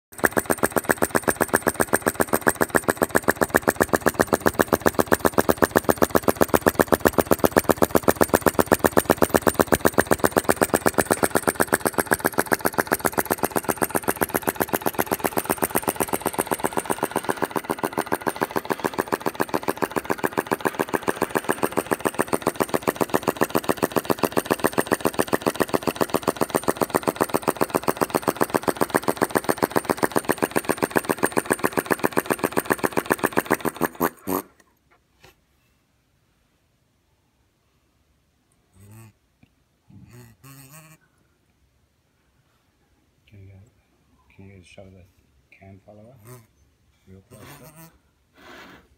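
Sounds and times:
flame-sucker engine popping: 0.1s - 34.6s.

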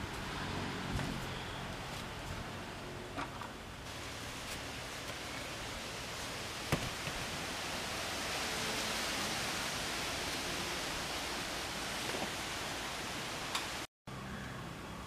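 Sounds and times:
steady hiss: 3.6s - 15.0s.

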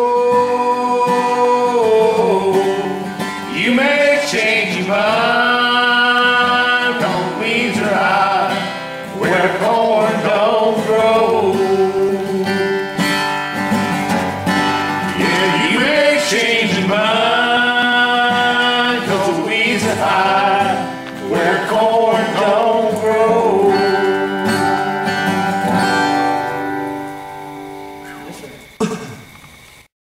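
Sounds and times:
person singing long notes: 0.0s - 13.0s, 15.1s - 25.1s
acoustic guitar: 0.0s - 29.9s.

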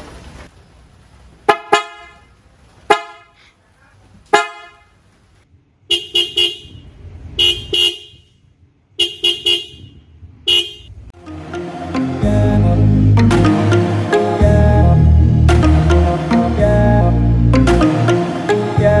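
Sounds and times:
bright car horn toots: 5.9s - 8.4s, 9.0s - 11.0s.

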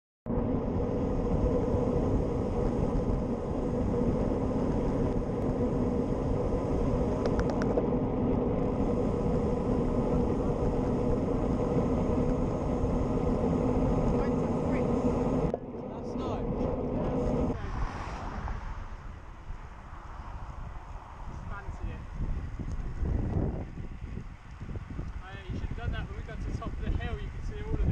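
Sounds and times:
bike tyre noise on tarmac: 0.3s - 27.9s
wind buffeting microphone: 0.3s - 27.9s
cluster of clicks: 7.1s - 7.8s.

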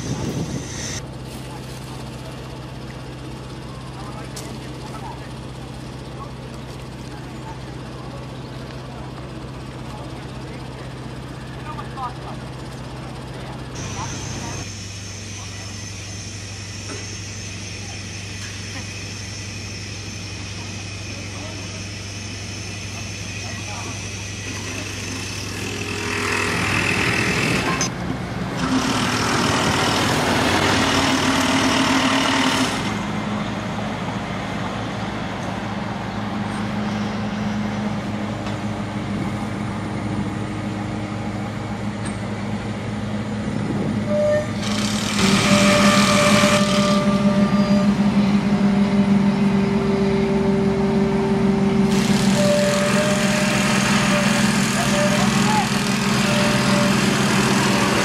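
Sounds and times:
crane diesel engine humming: 0.0s - 58.0s
hiss: 13.8s - 24.8s.

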